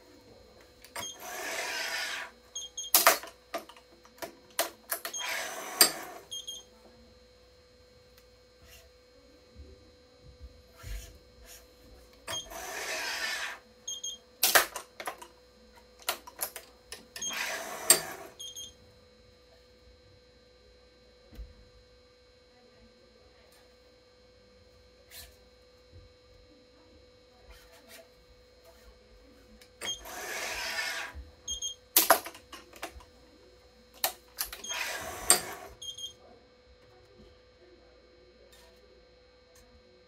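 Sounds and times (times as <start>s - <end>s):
stringing machine pulling string: 0.9s - 6.6s, 12.3s - 13.6s, 16.0s - 18.6s, 29.8s - 32.9s, 34.0s - 35.8s.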